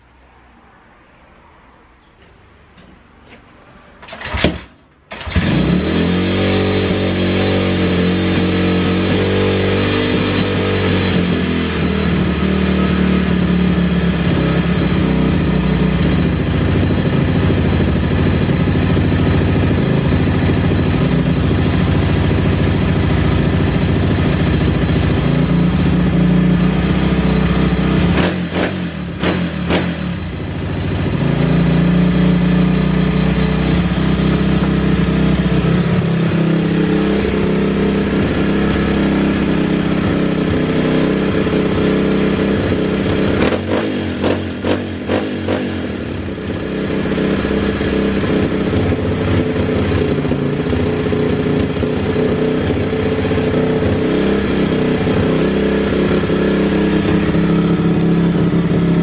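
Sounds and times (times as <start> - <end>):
pit bike engine running unevenly: 13.3 - 28.1, 33.7 - 59.0.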